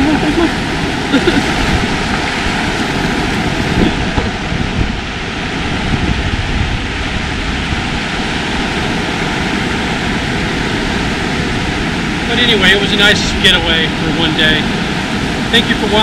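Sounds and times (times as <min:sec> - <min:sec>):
ocean surf rushing: 0:00.0 - 0:16.0
wind rumbling on microphone: 0:00.0 - 0:16.0.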